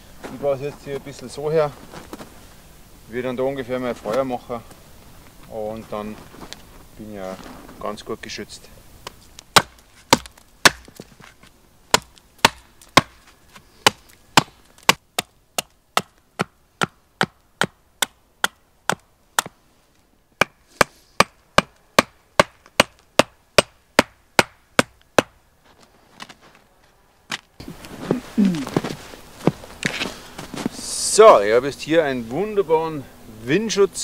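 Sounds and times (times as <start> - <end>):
hatchet chopping wood: 9.5 - 11.0, 11.9 - 13.2, 13.8 - 19.6, 20.4 - 25.4.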